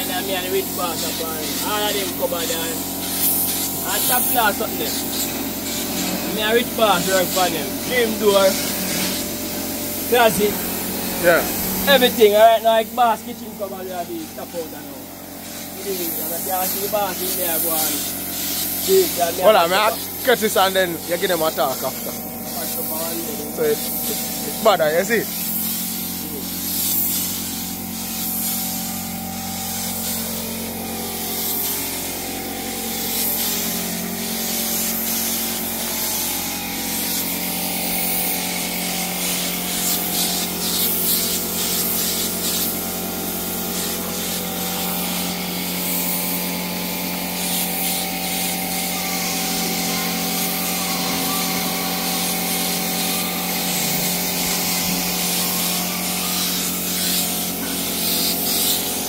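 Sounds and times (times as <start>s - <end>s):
spray gun hissing: 0.0s - 59.0s.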